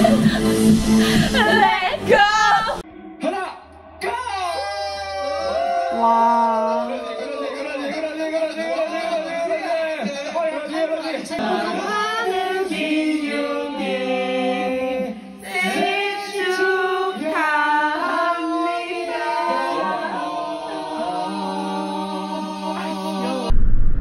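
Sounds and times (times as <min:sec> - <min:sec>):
backing music: 0:00.0 - 0:04.6
person singing: 0:04.8 - 0:07.8, 0:11.4 - 0:23.5.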